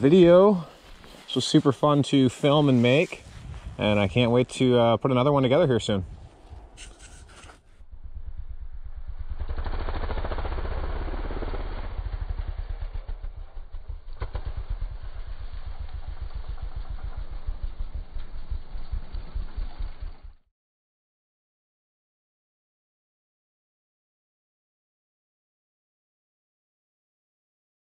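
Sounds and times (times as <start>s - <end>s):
quad engine under throttle: 7.7s - 20.4s.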